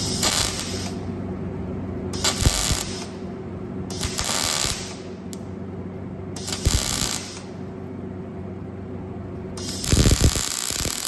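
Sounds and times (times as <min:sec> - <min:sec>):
welding arc buzzing: 0:00.0 - 0:01.2, 0:02.1 - 0:03.3, 0:03.9 - 0:05.4, 0:06.4 - 0:07.6, 0:09.6 - 0:11.0
steady low hum: 0:00.0 - 0:11.0.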